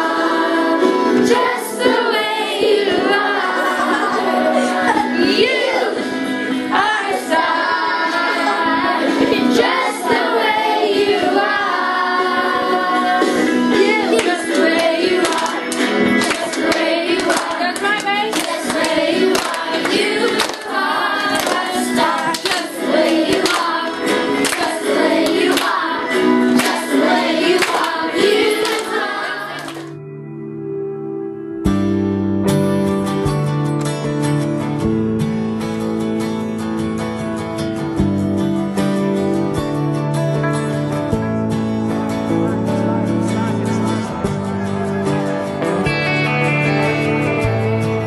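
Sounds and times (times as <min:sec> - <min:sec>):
group of voices singing: 0:00.0 - 0:29.9
music: 0:00.0 - 0:48.0
sharp hand claps: 0:14.2 - 0:25.8, 0:26.6 - 0:26.9, 0:27.6 - 0:28.0, 0:28.6 - 0:29.0.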